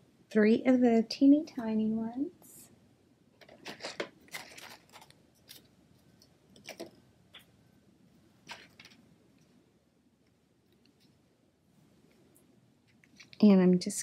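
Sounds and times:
small craft clicks and rustles: 3.3 - 7.6, 8.4 - 9.6, 12.0 - 13.6.

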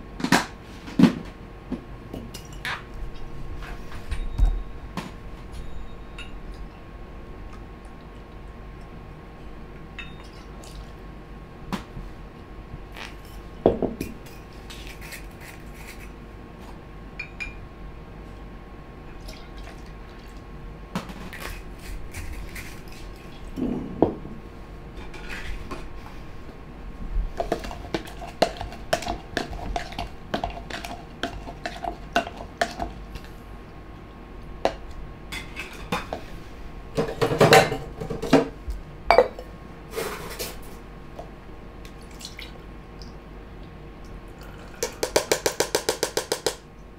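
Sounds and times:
faint steady hum: 0.0 - 46.9
bar tools and bottles clinking: 10.0 - 10.5.

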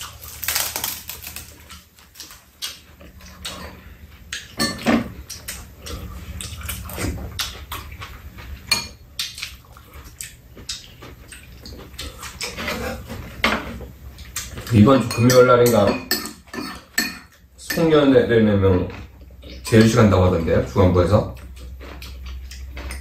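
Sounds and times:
chewing: 0.0 - 13.4, 14.1 - 14.8, 21.3 - 23.0.

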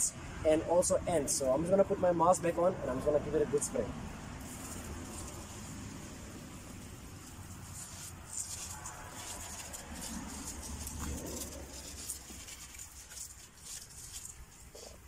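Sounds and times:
pressure sprayer hissing: 4.1 - 15.0.

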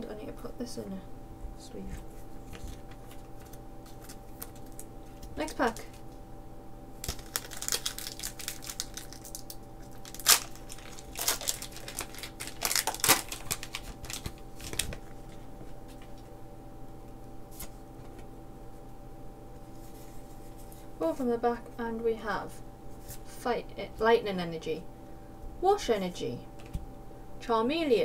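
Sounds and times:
cards being handled: 1.8 - 6.2, 7.0 - 16.3
foil wrapper crinkling and tearing: 2.5 - 6.0, 7.0 - 15.5.

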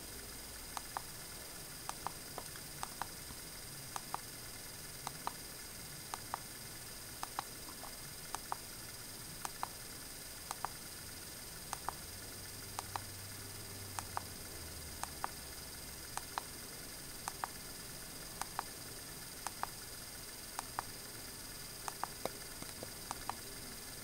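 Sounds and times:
steady hiss: 0.0 - 24.0
faint clicking in pairs: 1.8 - 3.3, 3.9 - 4.3, 5.0 - 5.4, 6.1 - 6.5, 7.2 - 8.7, 9.4 - 9.8, 10.5 - 10.8, 11.7 - 12.0, 12.7 - 13.1, 13.9 - 14.4, 15.0 - 15.4, 16.1 - 16.6, 17.2 - 17.6, 18.3 - 18.8, 19.4 - 19.8, 20.6 - 21.0, 21.8 - 23.5.

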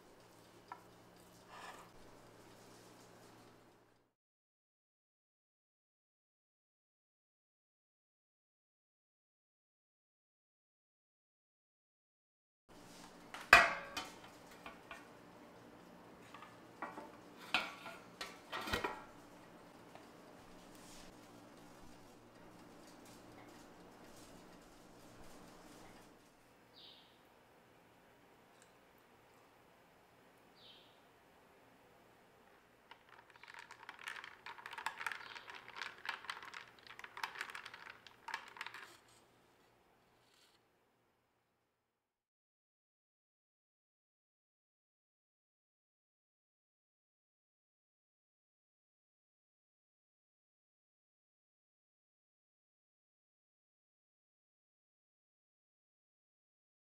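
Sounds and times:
spoon stirring ice in a glass: 32.9 - 39.2.

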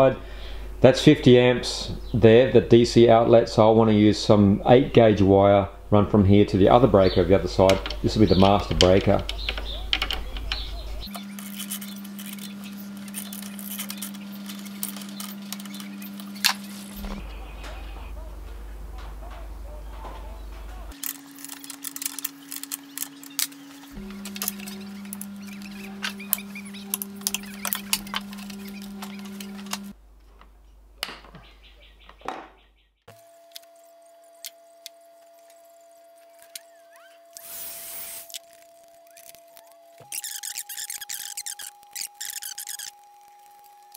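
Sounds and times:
low steady hum: 0.0 - 31.0
heat gun blowing: 37.3 - 38.7.

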